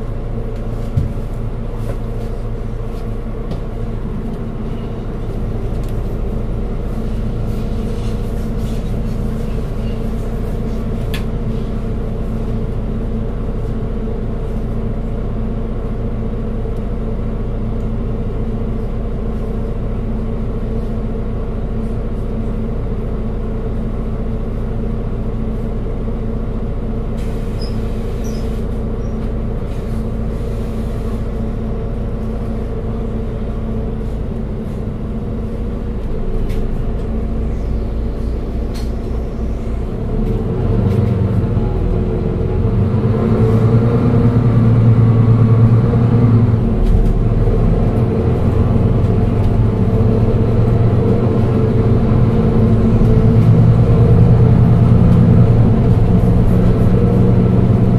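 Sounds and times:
bus engine running: 0.0 - 57.9.

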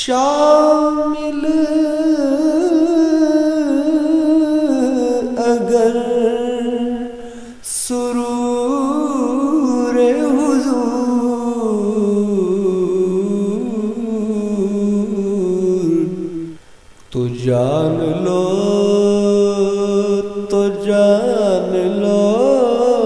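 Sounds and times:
man singing unaccompanied: 0.0 - 23.0
quick breath: 7.2 - 7.6.

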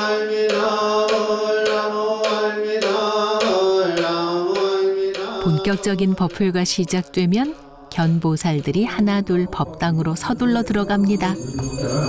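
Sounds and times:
low chanting voice: 0.0 - 8.1
steady struck beat: 0.0 - 10.8.

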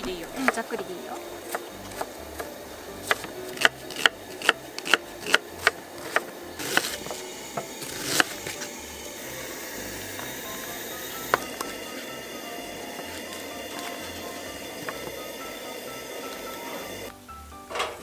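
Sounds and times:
knife chopping on wooden board: 1.4 - 7.2.

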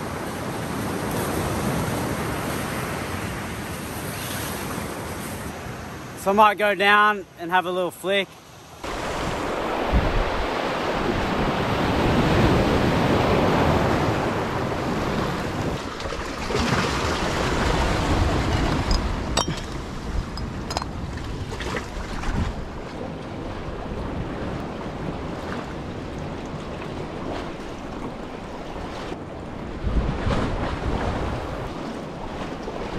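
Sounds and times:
small waves on rocky shore: 7.8 - 32.9
wind on microphone: 8.8 - 32.9.

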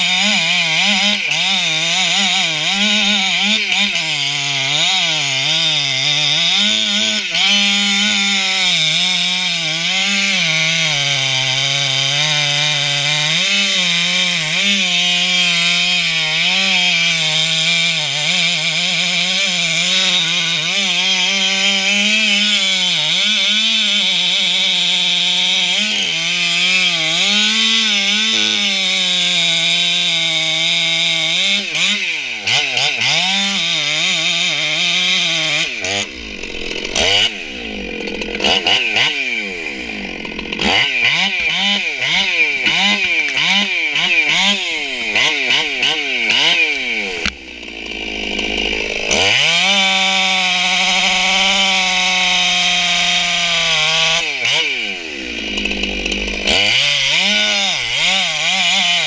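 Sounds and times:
chainsaw cutting tree: 0.0 - 59.0
chainsaw throttle blipping: 29.7 - 59.0.

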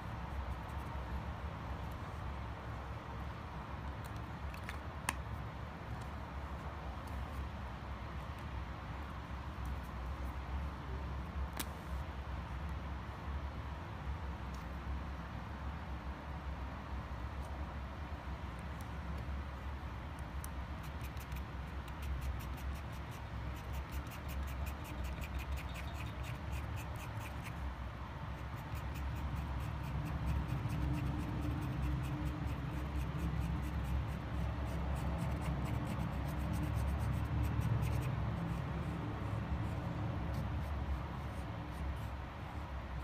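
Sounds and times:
marker tip scratching on stone: 20.2 - 42.4.

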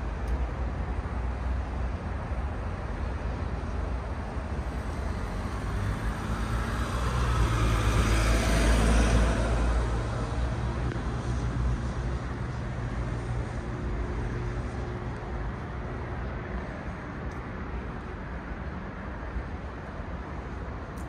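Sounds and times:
street traffic rumble: 0.0 - 21.0
vehicle passing by: 5.2 - 10.7.

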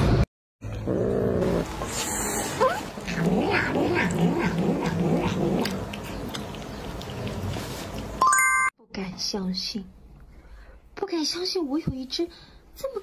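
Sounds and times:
cat yowling and growling: 2.6 - 5.8.

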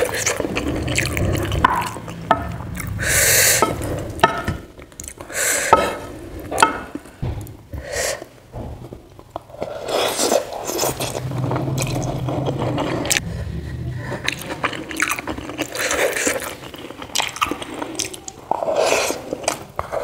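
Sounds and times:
wet eating mouth sounds: 0.0 - 4.2, 14.0 - 20.0.

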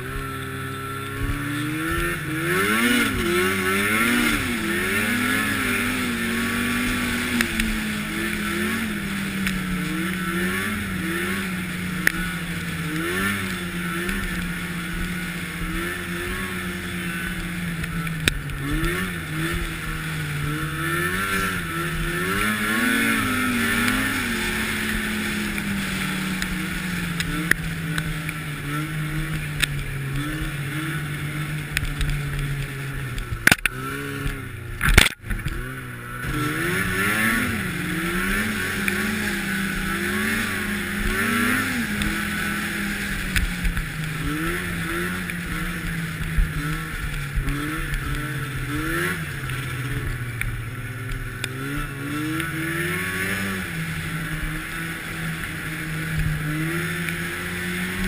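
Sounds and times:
snowmobile engine revving: 0.0 - 58.0.

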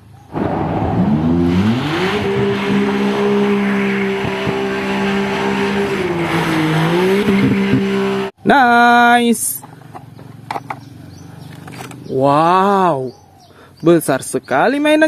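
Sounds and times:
car engine at high revs: 0.2 - 8.4.

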